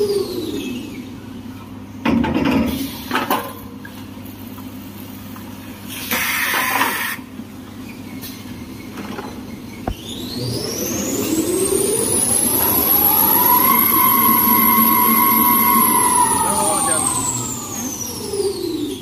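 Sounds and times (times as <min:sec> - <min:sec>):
short hissing bursts: 0:05.9 - 0:07.2
machine humming: 0:09.9 - 0:19.0.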